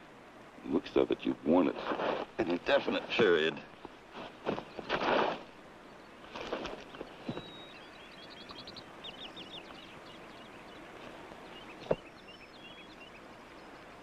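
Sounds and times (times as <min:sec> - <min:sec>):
faint outdoor background: 0:00.0 - 0:14.0
birds chirping: 0:00.6 - 0:14.0
rustling: 0:01.6 - 0:05.6, 0:06.2 - 0:07.6.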